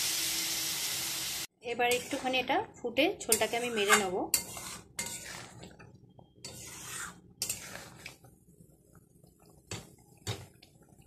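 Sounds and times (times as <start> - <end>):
metal spatula scraping a pan: 1.8 - 2.6, 3.2 - 8.3.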